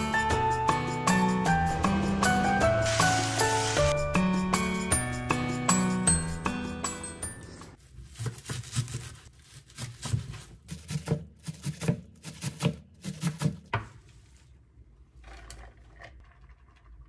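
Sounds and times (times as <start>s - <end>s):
knife chopping on wooden board: 10.7s - 13.8s.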